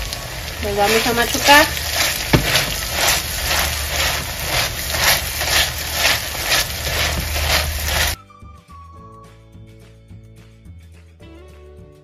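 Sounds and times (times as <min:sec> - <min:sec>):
beans sizzling in a skillet: 0:00.0 - 0:08.2
wire masher pressing beans: 0:01.3 - 0:08.2
knock against pan: 0:02.2 - 0:02.8.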